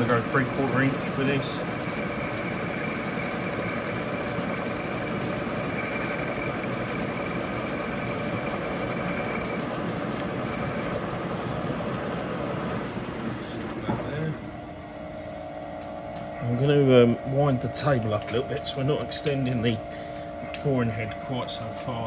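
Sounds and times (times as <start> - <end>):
thin high whine: 0.0 - 11.2
milling machine boring metal: 0.0 - 13.8.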